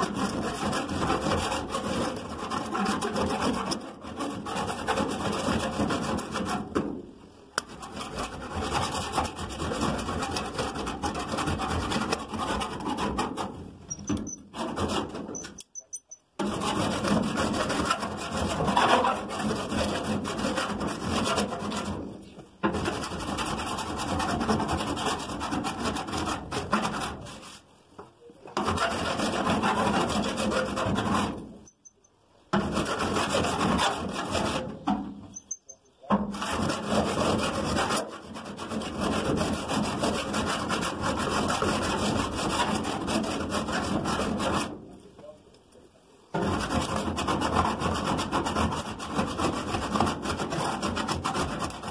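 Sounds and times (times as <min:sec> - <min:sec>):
body file rasping on metal: 0:07.6 - 0:21.8, 0:28.6 - 0:32.0, 0:32.6 - 0:34.8, 0:36.3 - 0:44.7
file squeaking: 0:13.9 - 0:16.3, 0:33.3 - 0:36.6.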